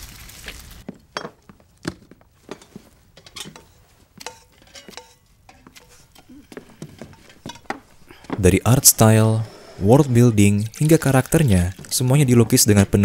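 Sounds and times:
dishes clinking on a wooden table: 1.2 - 1.5, 2.5 - 8.4.

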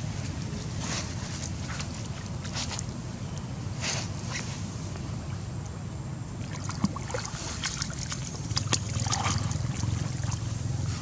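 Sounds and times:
water lapping and splashing: 0.0 - 3.2, 6.3 - 11.0.

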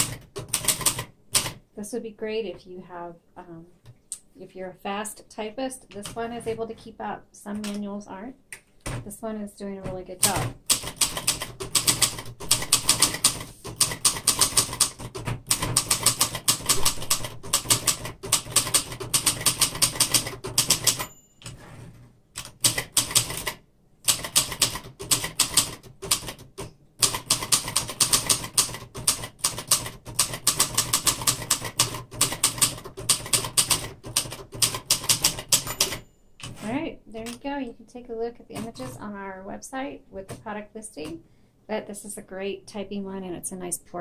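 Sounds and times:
manual typewriter keys clacking: 0.0 - 1.6, 10.2 - 21.6, 22.4 - 37.5.

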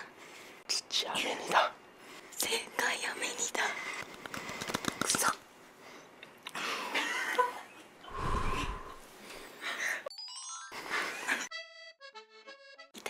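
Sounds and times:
quick crackling clicks: 4.0 - 5.4.

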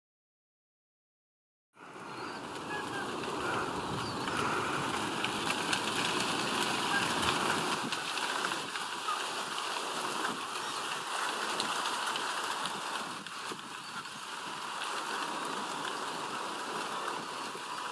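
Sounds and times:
chicks cheeping: 2.0 - 5.0.

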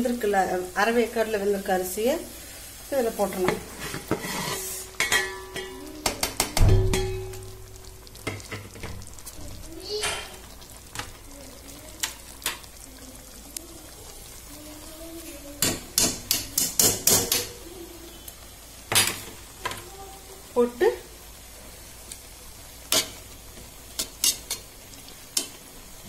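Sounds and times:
metal spoon scraping a pot: 3.7 - 5.7.

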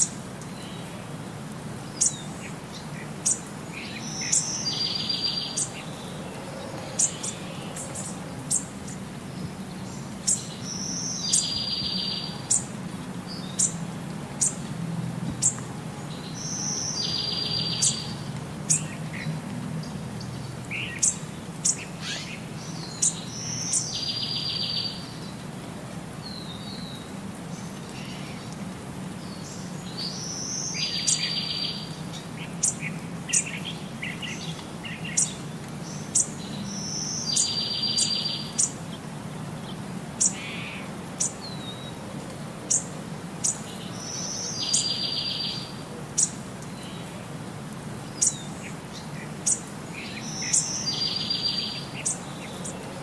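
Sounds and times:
low steady background noise: 0.0 - 53.0
bird chirping high: 49.4 - 52.8.

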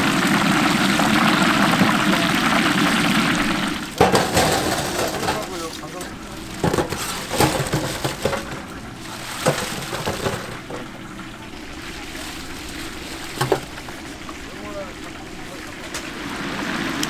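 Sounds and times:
frying hiss: 0.0 - 17.0
metal utensils clattering: 4.0 - 11.0.

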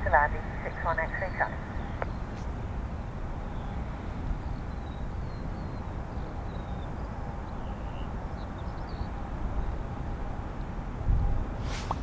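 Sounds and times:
gusty wind buffeting microphone: 0.0 - 12.0.

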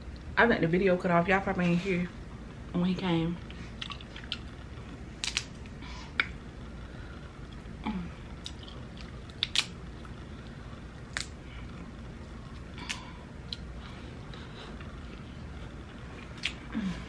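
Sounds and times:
crab shell cracking: 5.2 - 5.6, 8.4 - 9.8, 11.0 - 11.4
soft chewing: 8.3 - 16.9.

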